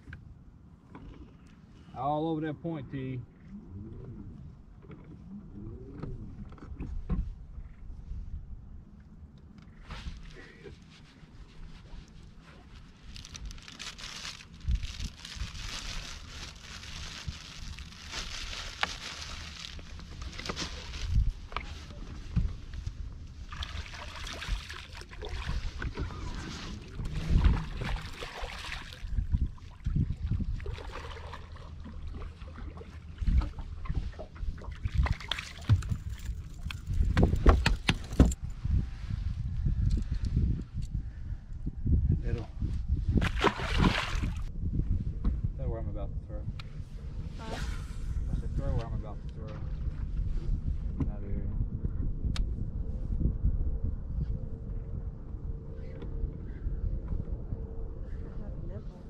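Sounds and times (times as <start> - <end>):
steady low rumble: 0.0 - 59.0
wind on microphone: 11.2 - 59.0
water lapping against boat hull: 18.8 - 38.1.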